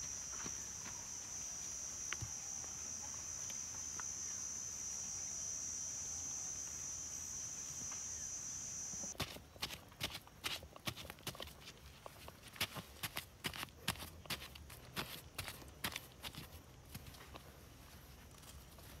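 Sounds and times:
insects droning: 0:00.0 - 0:09.2.

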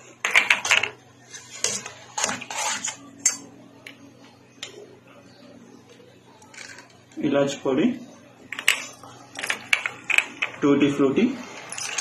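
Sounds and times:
ladle scraping steel saucepan: 0:01.3 - 0:03.4.

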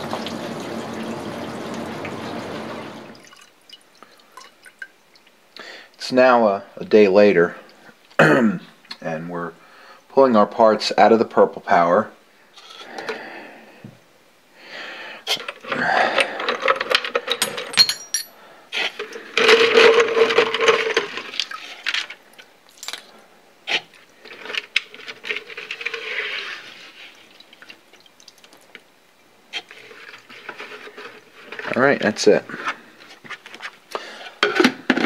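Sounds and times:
metal parts clinking: 0:16.2 - 0:18.4, 0:22.7 - 0:23.1
liquid sloshing in a plastic jar: 0:19.1 - 0:23.1, 0:23.7 - 0:28.8, 0:29.5 - 0:33.8.

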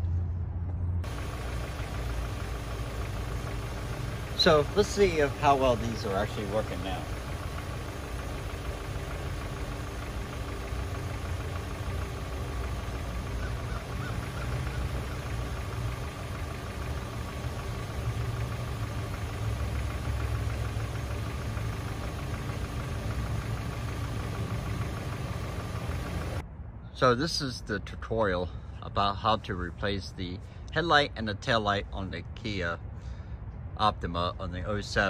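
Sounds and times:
car engine idling: 0:00.9 - 0:26.4
faint steady whine: 0:01.0 - 0:26.4.

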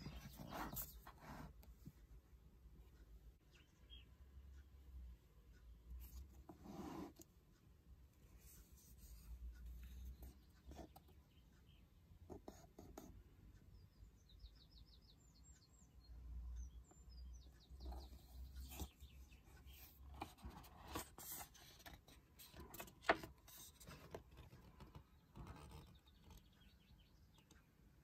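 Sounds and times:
faint bird chirps: 0:03.4 - 0:05.0, 0:09.0 - 0:22.8, 0:23.5 - 0:28.0
book pages turning: 0:19.7 - 0:26.4.

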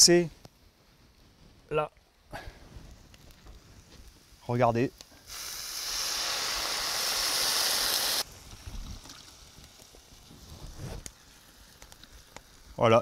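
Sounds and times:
liquid hissing in hot pot: 0:05.2 - 0:12.7.

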